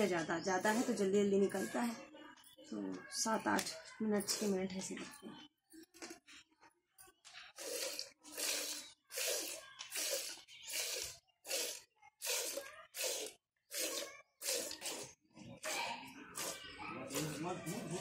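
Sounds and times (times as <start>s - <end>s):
milk squirting into a pail: 7.6s - 15.8s, 16.4s - 17.4s.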